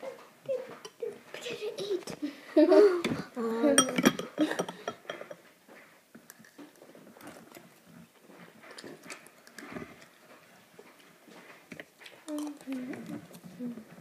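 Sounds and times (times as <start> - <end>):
metal spoon clinking on dishes: 3.7 - 5.4
quiet rustling: 4.4 - 14.0.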